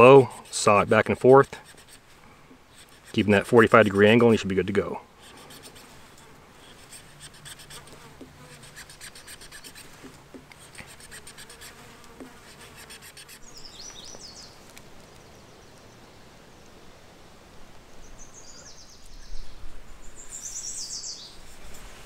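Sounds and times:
knife sawing through wood: 0.0 - 4.2, 5.2 - 6.0, 6.6 - 13.4
fly buzzing: 1.6 - 3.3, 5.2 - 14.6
bird chirping: 13.3 - 16.2, 17.9 - 21.4.

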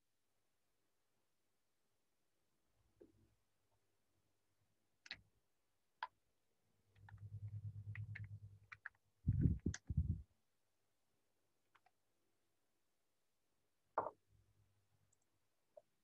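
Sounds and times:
low pulsing rumble: 7.1 - 8.5, 9.3 - 10.2
heavy low thumps: 9.3 - 10.2.

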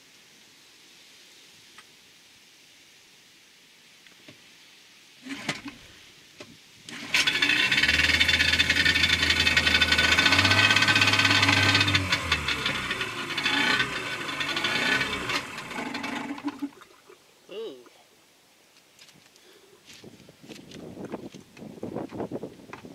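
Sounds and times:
outboard motor running with rattle: 5.3 - 5.9, 6.9 - 16.8.

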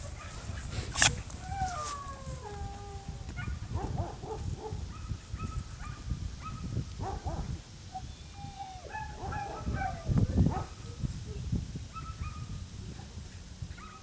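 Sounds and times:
dog whining and yipping: 8.0 - 10.2.

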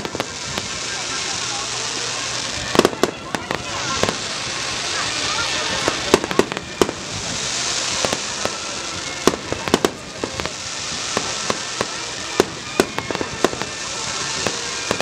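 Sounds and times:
fireworks popping and banging: 0.0 - 15.0
steady hiss: 0.0 - 15.0.

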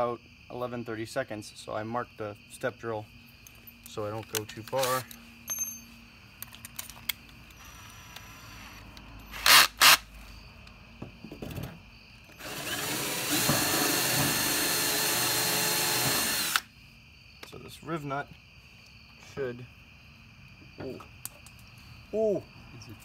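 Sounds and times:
cordless drill cutting metal: 7.5 - 10.0, 12.3 - 16.7
short sharp drill bursts: 7.6 - 10.0, 12.4 - 16.7.

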